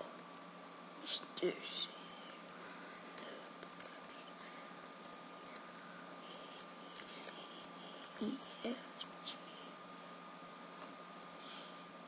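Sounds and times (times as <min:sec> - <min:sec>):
computer keyboard typing clicks: 0:04.8 - 0:09.8.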